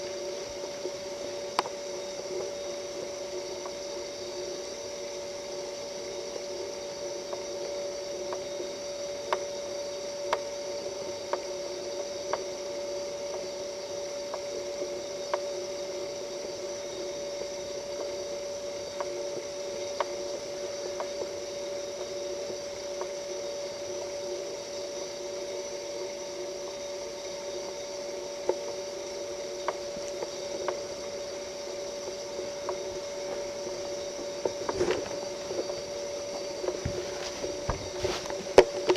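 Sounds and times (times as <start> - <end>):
steady multi-tone hum: 0.0 - 38.9
faint clicks: 29.6 - 30.8.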